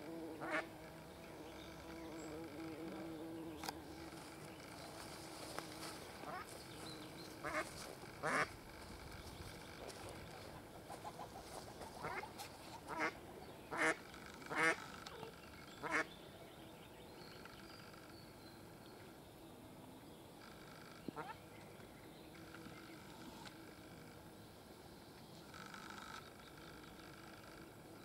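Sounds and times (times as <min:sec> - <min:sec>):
ducks quacking: 0:05.2 - 0:06.6, 0:07.3 - 0:08.6, 0:09.8 - 0:16.1.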